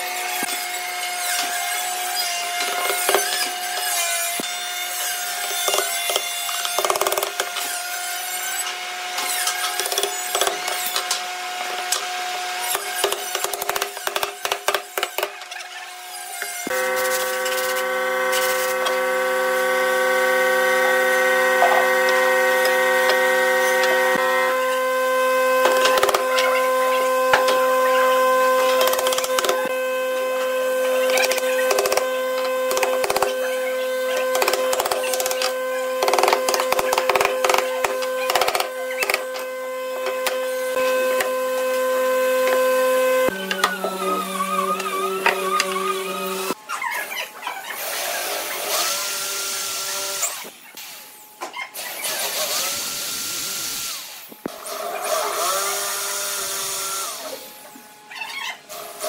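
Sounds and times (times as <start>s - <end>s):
electric drill whining: 15.9s - 46.6s, 52.0s - 57.8s.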